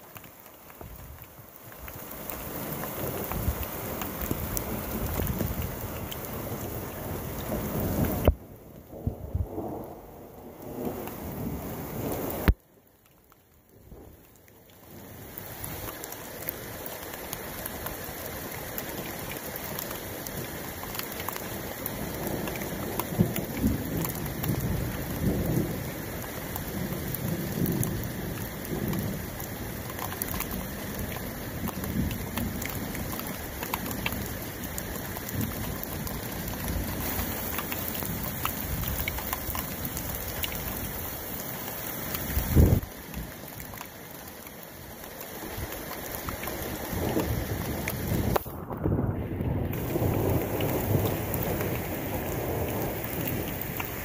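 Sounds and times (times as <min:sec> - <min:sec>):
heavy rain falling: 0:00.0 - 0:54.0
thunder rumbling: 0:46.9 - 0:54.0.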